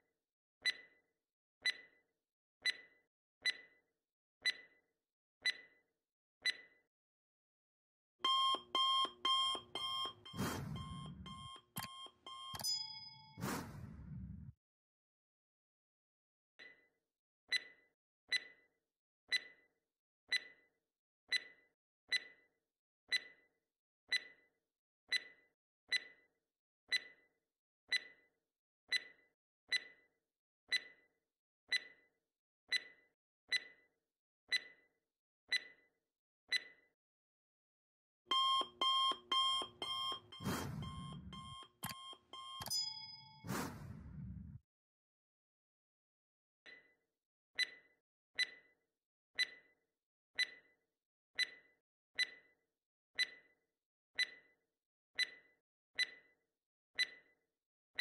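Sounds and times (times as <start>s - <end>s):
alarm clock ringing: 8.2s - 13.7s, 38.3s - 43.5s
clock ticking: 8.2s - 13.8s, 38.3s - 43.9s.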